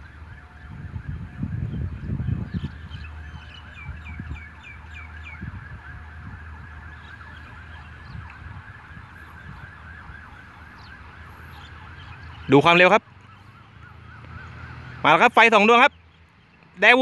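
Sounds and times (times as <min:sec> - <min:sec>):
level crossing alarm warbling: 0:00.0 - 0:15.9
bird chirping: 0:01.6 - 0:05.5, 0:10.3 - 0:16.9.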